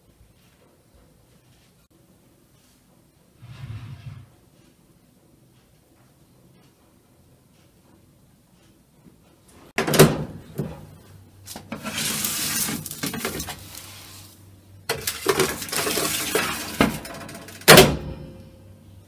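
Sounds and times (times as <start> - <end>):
baking tray scraping oven rack: 3.4 - 4.3, 11.6 - 14.2, 14.9 - 17.6.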